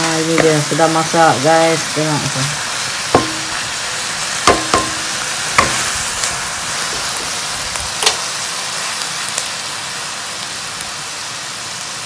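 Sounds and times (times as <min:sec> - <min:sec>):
vegetables sizzling in a wok: 0:00.0 - 0:12.0
wooden spatula knocking on wok: 0:00.3 - 0:00.6, 0:03.2 - 0:03.7, 0:04.5 - 0:05.9.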